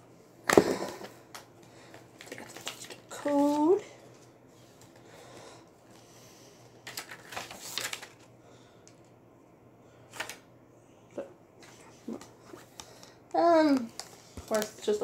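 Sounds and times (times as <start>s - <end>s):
paper rustling: 2.2s - 5.0s, 6.8s - 8.3s.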